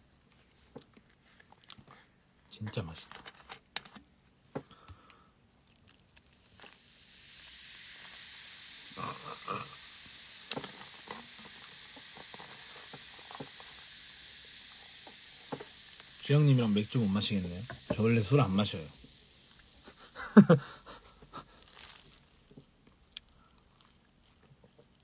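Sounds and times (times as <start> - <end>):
carbonation fizzing: 5.7 - 25.0
soda pouring into cup of ice: 5.7 - 25.0.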